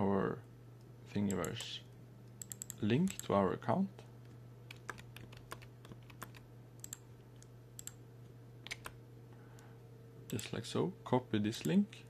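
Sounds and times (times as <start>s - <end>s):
low steady hum: 0.0s - 12.0s
keyboard and mouse clicks: 2.3s - 3.3s, 4.7s - 8.0s, 8.6s - 9.0s.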